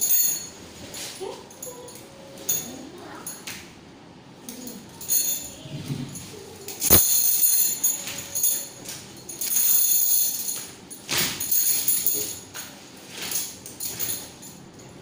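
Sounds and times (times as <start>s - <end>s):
swing chain clinking: 0.0s - 3.4s, 4.5s - 15.0s
swing chain clank: 5.0s - 14.6s.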